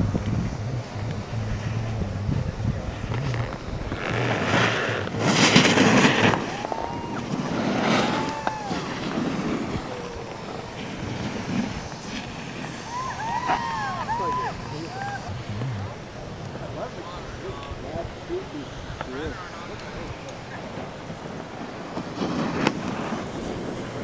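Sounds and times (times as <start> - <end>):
snowboard edge scraping snow: 0.0 - 17.2, 18.3 - 24.0
distant voices whooping: 5.4 - 21.4.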